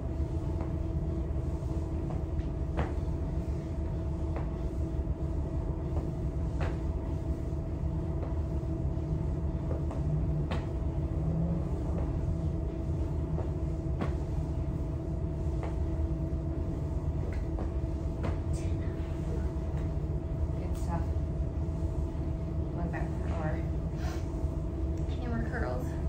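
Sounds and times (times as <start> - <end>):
low room hum: 0.0 - 26.0
feet landing on rubber floor: 5.9 - 6.9, 9.6 - 10.8, 15.5 - 16.0, 17.2 - 18.6.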